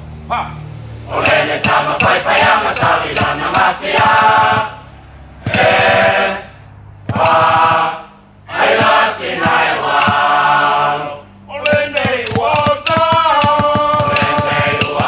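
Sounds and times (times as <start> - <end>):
choir singing: 1.1 - 6.5, 7.1 - 15.0
sharp percussive taps: 1.2 - 4.8, 5.4 - 6.2, 7.1 - 7.9, 8.7 - 10.4, 11.6 - 15.0.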